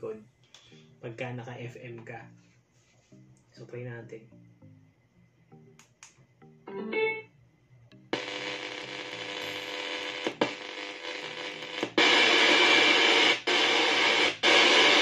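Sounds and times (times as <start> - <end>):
electronic prompt sound: 5.5 - 7.2
radio static hiss: 8.1 - 15.0.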